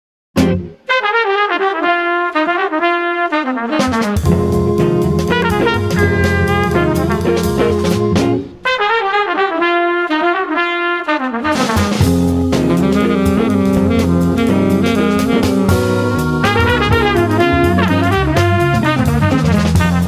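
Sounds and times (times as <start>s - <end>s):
jazz band playing: 0.4s - 20.0s
trumpet and saxophone melody: 0.4s - 20.0s
drums swinging: 3.7s - 8.7s, 11.4s - 20.0s
organ: 4.2s - 8.6s, 11.9s - 20.0s.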